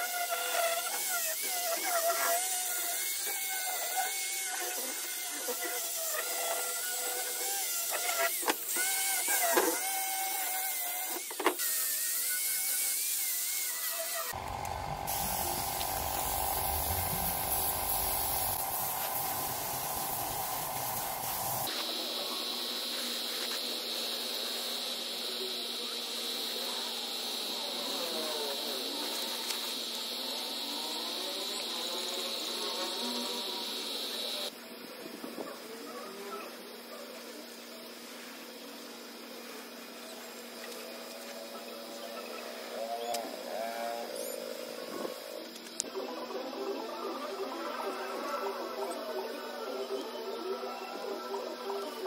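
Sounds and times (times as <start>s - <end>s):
angle grinder whining on steel: 13.8s - 21.7s
insects droning: 14.3s - 52.0s
low rumble with hum: 14.4s - 21.7s.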